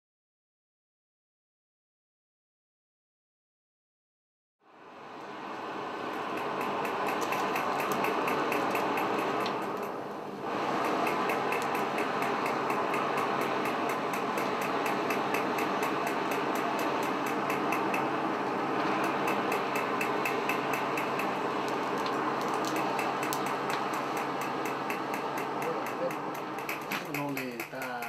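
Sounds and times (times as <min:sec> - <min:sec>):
electric blower humming: 0:04.8 - 0:27.7
rapid even ticking: 0:06.1 - 0:18.2, 0:18.9 - 0:28.0.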